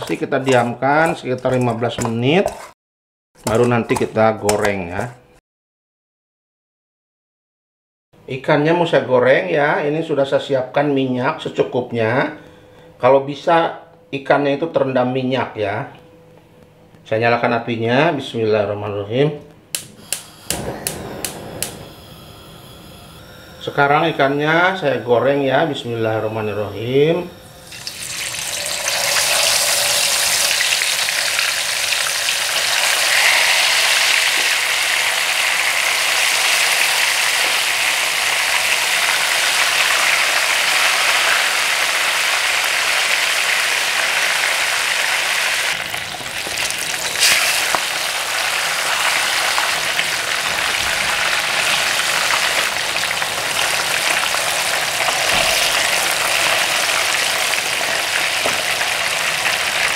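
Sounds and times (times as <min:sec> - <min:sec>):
fish deep-frying in oil: 0:27.3 - 0:59.9.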